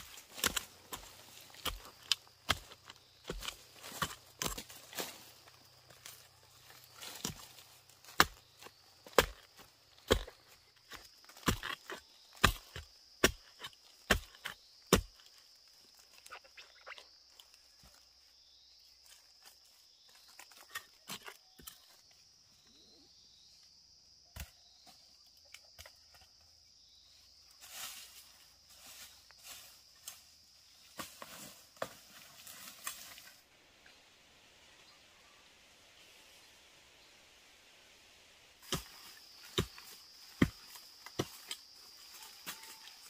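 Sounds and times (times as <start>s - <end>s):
blade chopping bamboo: 0.0s - 4.8s, 8.0s - 8.4s, 9.0s - 15.2s, 38.6s - 41.6s.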